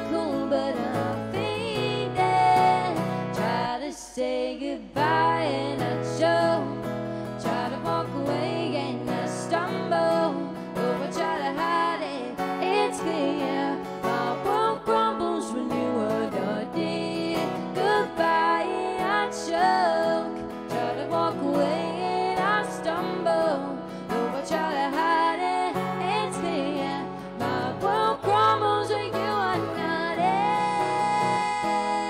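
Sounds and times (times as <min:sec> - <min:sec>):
acoustic guitar chords: 0:00.0 - 0:04.0, 0:04.8 - 0:32.0
woman singing: 0:00.0 - 0:32.0.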